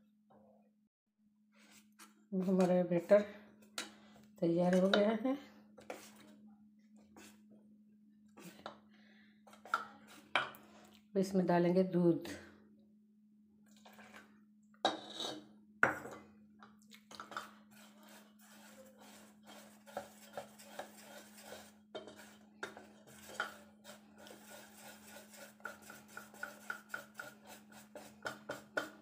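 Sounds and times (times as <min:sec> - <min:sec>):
whisk beating in steel bowl: 0:17.1 - 0:29.0.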